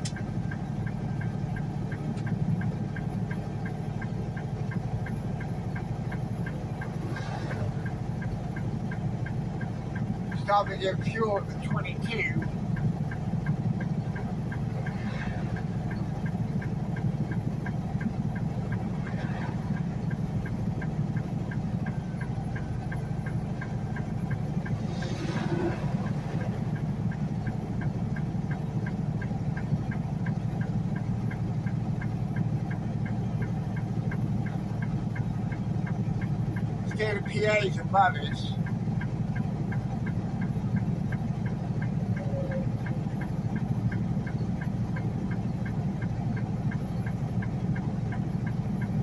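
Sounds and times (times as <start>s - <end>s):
truck engine drone: 0.0s - 49.0s
turn signal ticking: 0.0s - 49.0s.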